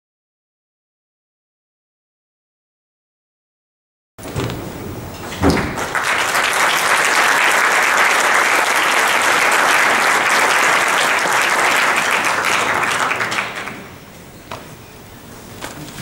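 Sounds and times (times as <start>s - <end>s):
audience applauding: 5.2s - 14.2s.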